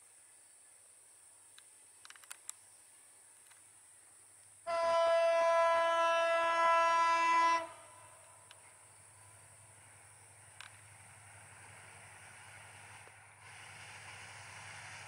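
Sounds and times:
locomotive air horn blast: 4.7s - 8.3s.

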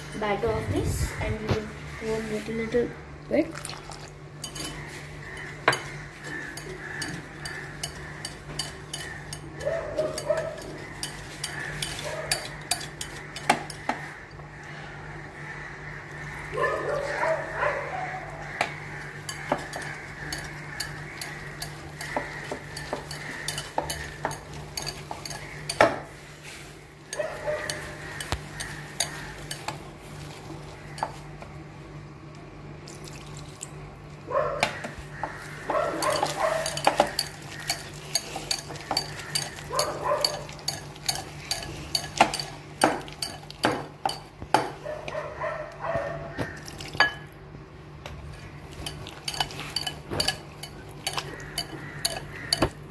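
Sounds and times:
whisk clicking against bowl: 36.0s - 44.6s.

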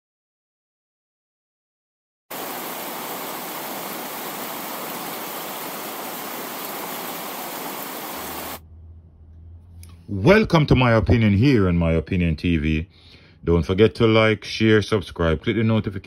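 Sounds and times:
static-like hiss: 2.3s - 8.6s.

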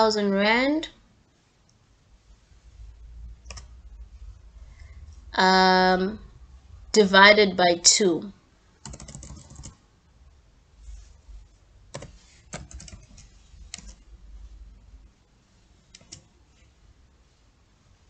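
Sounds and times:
computer keyboard keystrokes: 3.4s - 3.7s, 8.8s - 9.8s, 11.9s - 14.0s, 15.9s - 16.3s.

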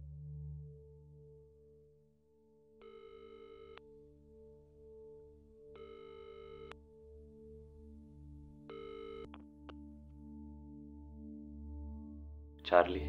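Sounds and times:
faint low drone: 0.0s - 3.1s
telephone ringing tone: 2.8s - 3.8s, 5.8s - 6.8s, 8.7s - 9.3s.

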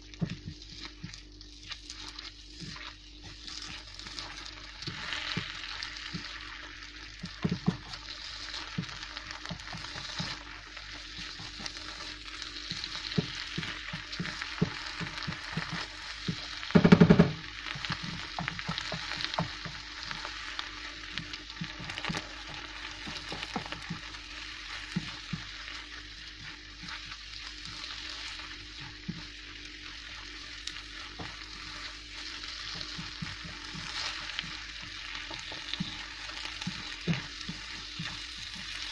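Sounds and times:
sauce sizzling in frying pan: 0.0s - 38.9s
wooden spatula scraping pan: 24.6s - 38.9s.

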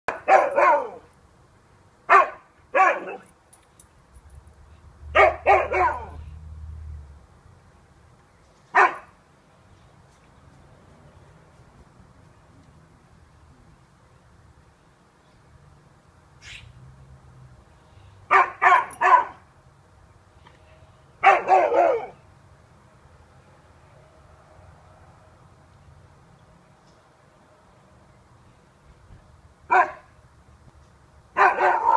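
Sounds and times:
dog barking: 0.1s - 1.1s, 2.1s - 3.2s, 5.1s - 6.2s, 8.8s - 9.1s, 18.3s - 19.4s, 21.2s - 22.2s, 29.7s - 30.1s, 31.4s - 31.9s.

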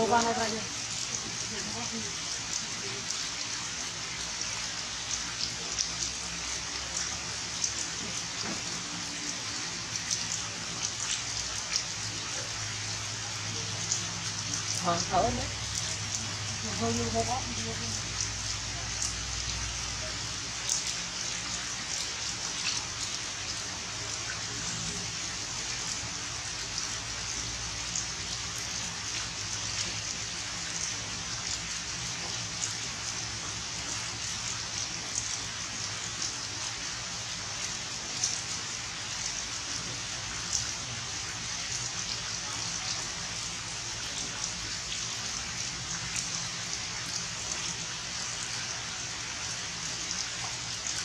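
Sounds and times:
steady rain falling: 0.0s - 51.0s.

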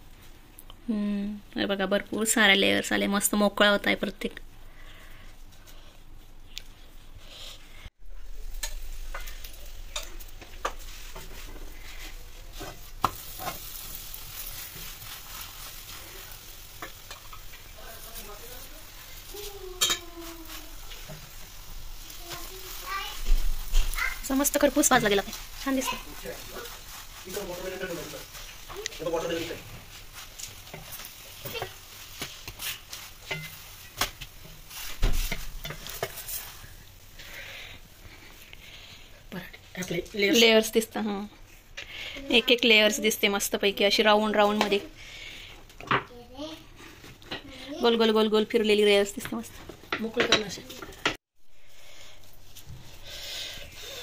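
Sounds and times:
flatbread sizzling in a pan: 4.5s - 54.0s
wooden spatula scraping a pan: 8.2s - 40.7s.

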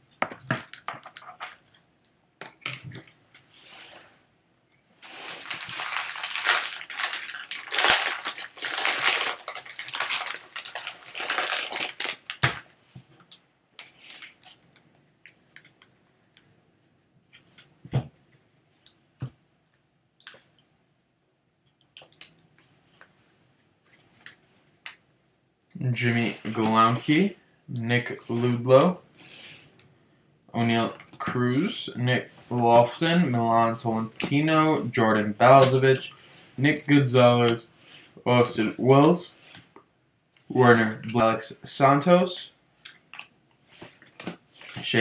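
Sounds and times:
foil wrapper crinkling and tearing: 5.0s - 12.7s.

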